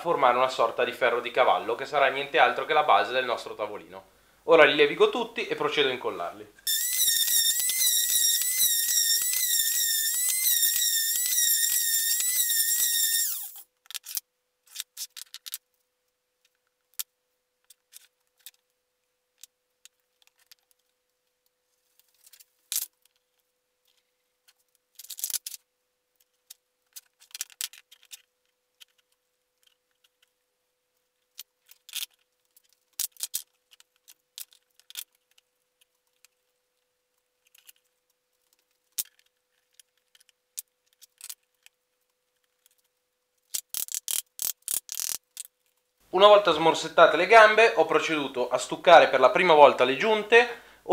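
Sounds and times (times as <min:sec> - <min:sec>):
orbital sander whining: 0:06.7 - 0:13.6.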